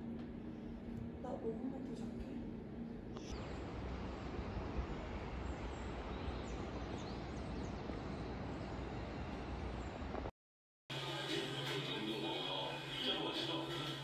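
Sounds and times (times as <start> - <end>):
low outdoor rumble: 0.0 - 10.3.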